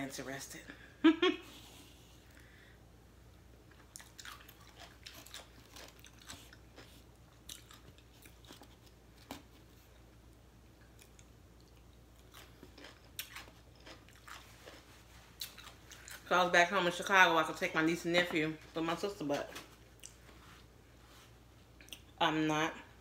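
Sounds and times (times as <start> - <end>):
person chewing crunchy food: 3.6 - 10.1, 10.8 - 16.3.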